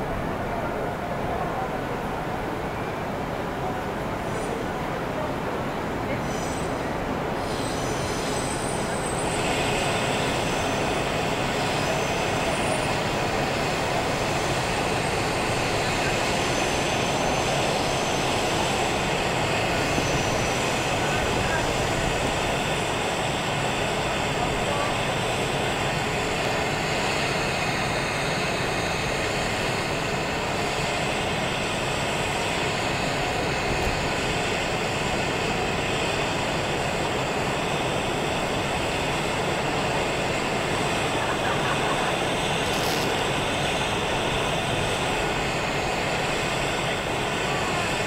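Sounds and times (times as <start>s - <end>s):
city ambience roar: 0.0s - 48.0s.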